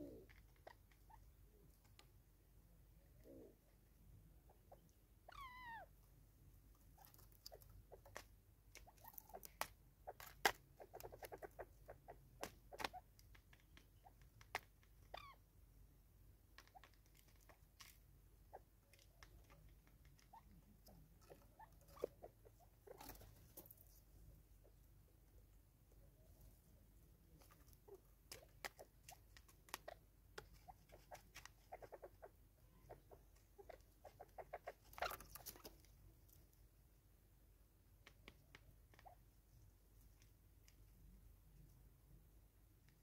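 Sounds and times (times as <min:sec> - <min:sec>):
bird pecking clicks and taps: 0:28.3 - 0:31.8.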